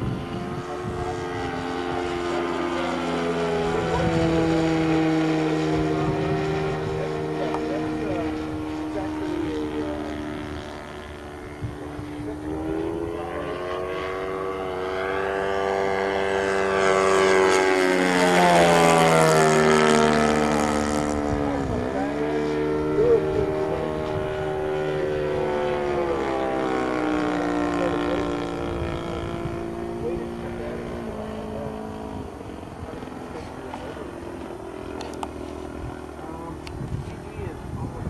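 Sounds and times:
model plane engine buzzing: 0.0s - 38.0s.

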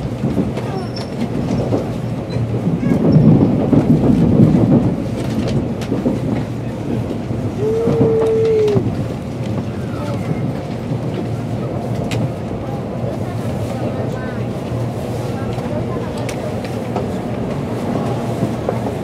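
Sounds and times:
wheels clicking over rail joints: 0.0s - 13.2s
train rumbling: 0.0s - 19.0s.

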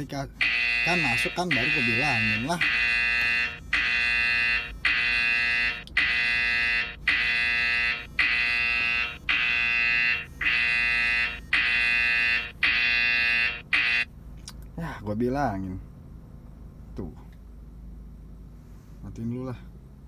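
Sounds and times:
high buzzy phone alert chime: 0.4s - 5.8s.

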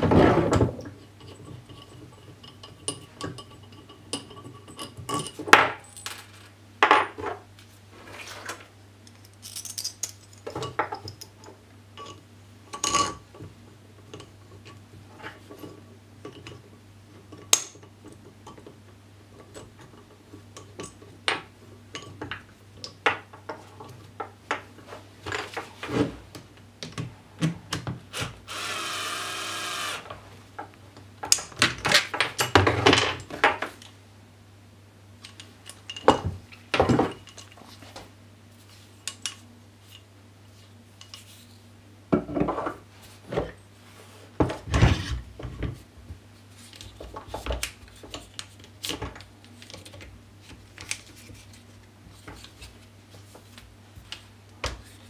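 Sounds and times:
metal clamp parts clinking: 9.1s - 11.3s
cordless drill running: 28.4s - 30.1s.

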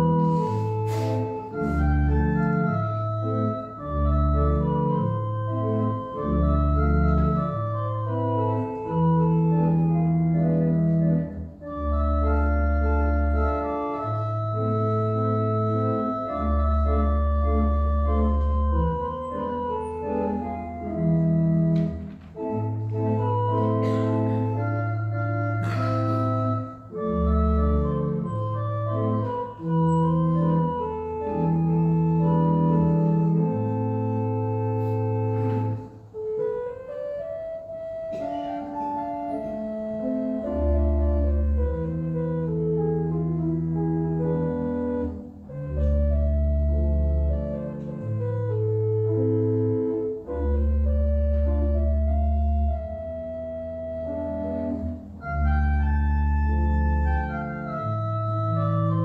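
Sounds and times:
organ playing slow chords: 0.0s - 59.0s.

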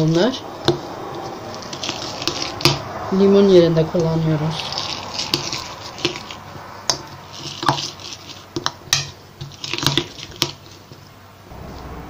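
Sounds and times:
grapes squishing and crunching: 0.0s - 11.2s.

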